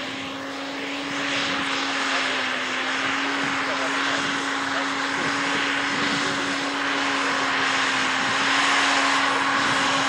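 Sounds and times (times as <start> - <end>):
engine drone: 0.0 - 10.0
low hum: 0.0 - 10.0.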